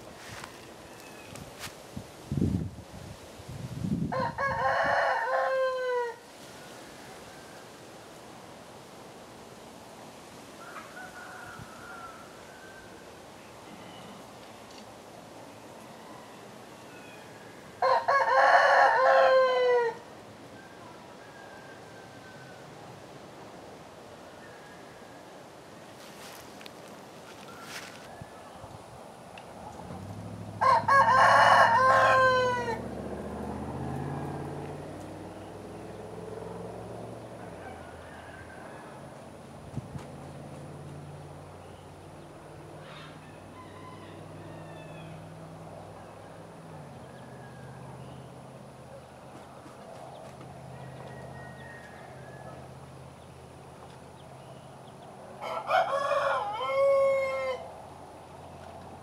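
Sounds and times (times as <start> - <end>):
rooster crowing: 4.1 - 7.8, 10.6 - 13.0, 15.9 - 22.7, 30.6 - 34.5, 37.3 - 39.2, 42.8 - 45.3, 46.2 - 48.0, 50.7 - 52.8, 55.4 - 57.8.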